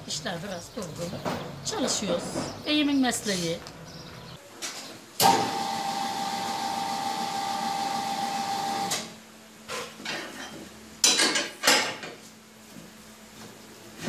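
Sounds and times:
tyre changer motor whine: 5.2 - 9.2.

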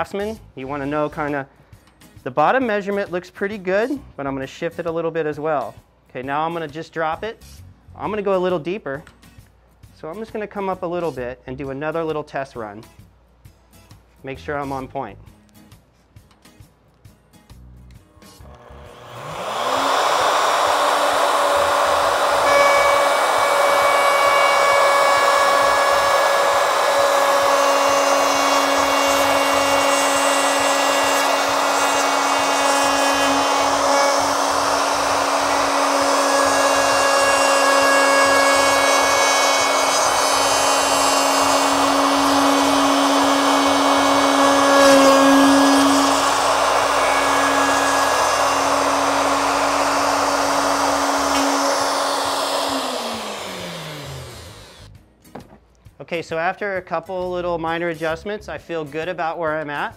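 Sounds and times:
router whining: 18.1 - 54.9.

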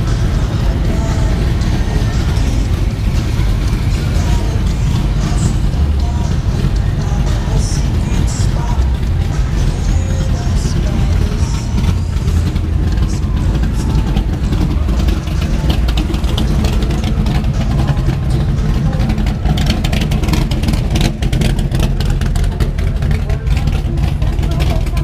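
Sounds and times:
car engine low rumble: 0.0 - 25.0.

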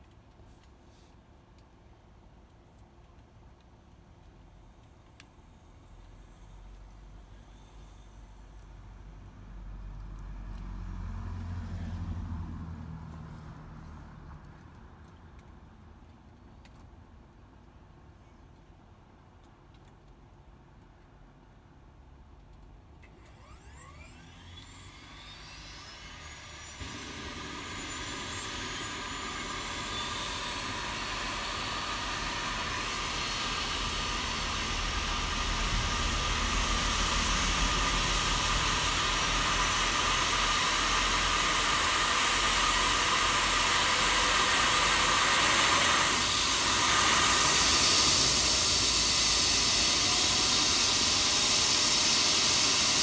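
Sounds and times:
helicopter turbine whine rising: 23.4 - 53.0
rotor rushing hiss: 25.0 - 53.0.

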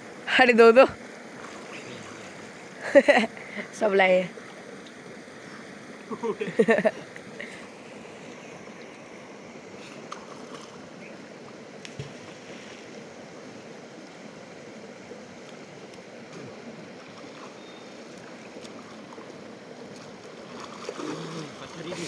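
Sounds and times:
river water rushing: 1.0 - 22.0
small splashes: 1.3 - 2.5, 16.3 - 22.0.

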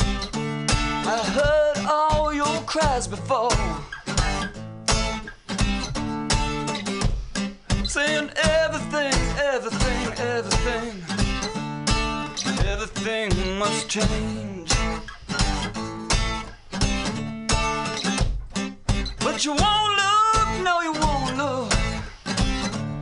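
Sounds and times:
strummed acoustic guitar: 0.0 - 23.0
man singing: 0.9 - 4.5, 7.8 - 15.1, 19.2 - 22.0.

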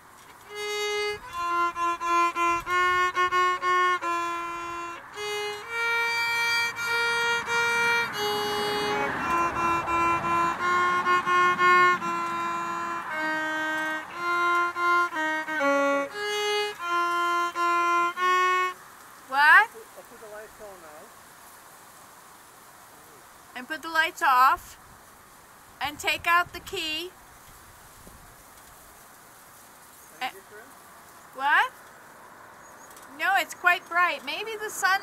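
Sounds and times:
violin playing short notes: 0.4 - 18.8.

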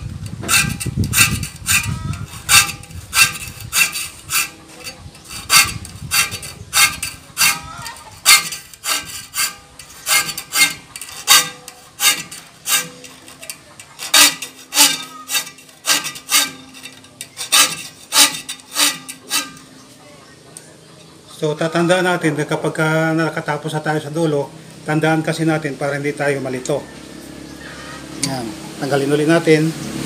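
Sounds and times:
file rasping on saw teeth: 0.0 - 19.8
metallic ringing of saw blade: 0.5 - 19.8.

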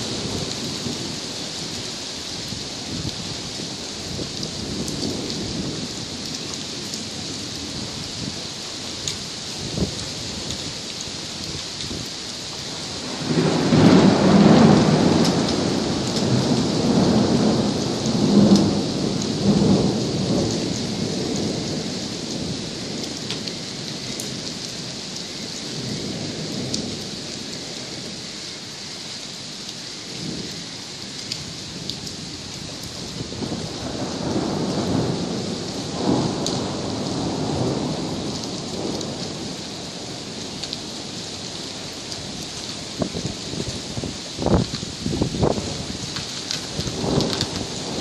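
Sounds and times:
steady rain: 0.0 - 48.0
thunder rumbling: 12.7 - 28.2, 31.2 - 48.0.

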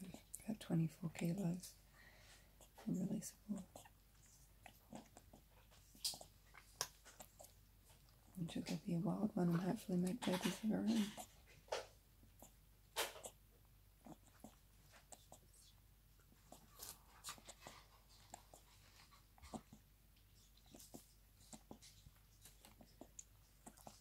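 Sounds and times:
animal suckling wet clicks: 4.6 - 8.8.

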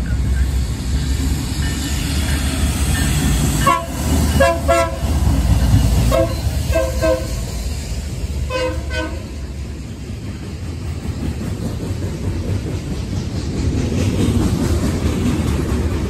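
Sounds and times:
locomotive engine and rail rumble: 0.0 - 16.0
train horn blasts: 3.6 - 5.2, 6.0 - 7.6, 8.5 - 9.4.

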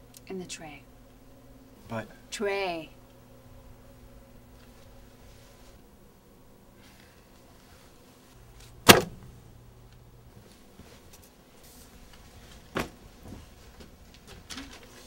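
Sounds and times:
sharp thumps: 8.8 - 9.3.

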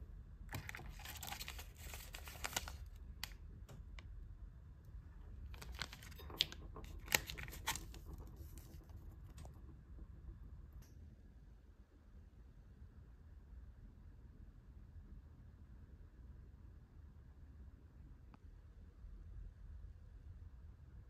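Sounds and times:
paper sachets rustling: 0.5 - 3.0, 5.5 - 8.9.

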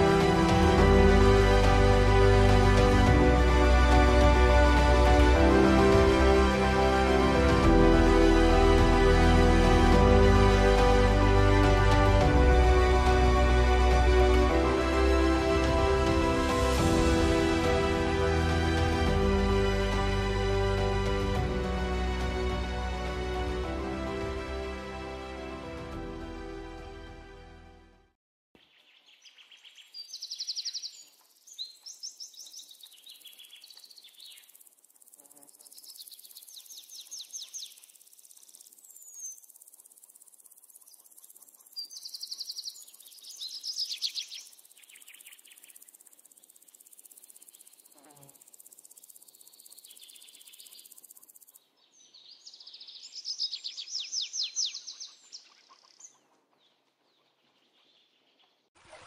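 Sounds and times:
songbirds trilling: 28.6 - 58.7
high insect hiss: 30.0 - 55.2.

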